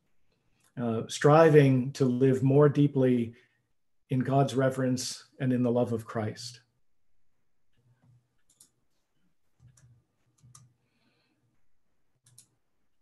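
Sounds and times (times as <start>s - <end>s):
faint clicks: 12.2s - 12.5s.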